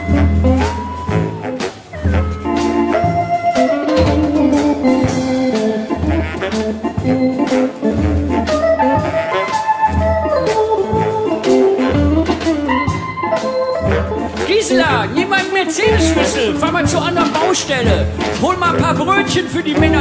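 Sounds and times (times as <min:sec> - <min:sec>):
electric guitar: 0:00.0 - 0:14.5
bass: 0:00.0 - 0:20.0
drum beat: 0:00.0 - 0:20.0
organ chords: 0:00.0 - 0:20.0.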